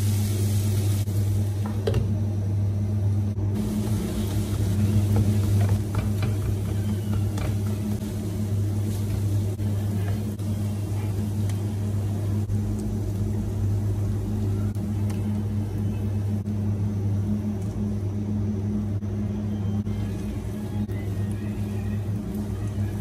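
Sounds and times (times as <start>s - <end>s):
vegetables sizzling in a pan: 0.0s - 1.6s, 3.6s - 12.4s
low motor hum: 0.0s - 23.0s.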